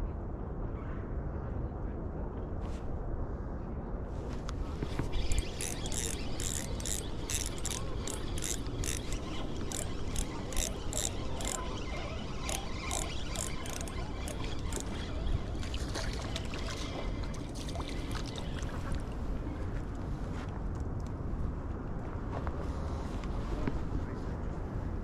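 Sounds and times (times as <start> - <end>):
fishing reel ratchet clicks: 5.2 - 15.4.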